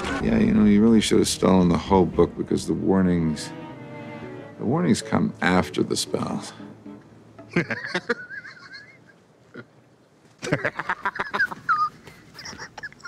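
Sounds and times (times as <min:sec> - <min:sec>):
man laughing heartily: 0:07.4 - 0:09.8, 0:10.4 - 0:13.0.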